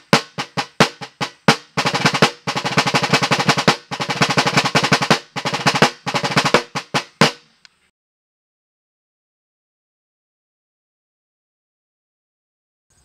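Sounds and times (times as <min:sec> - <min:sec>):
field drum rolls: 0:00.0 - 0:07.4.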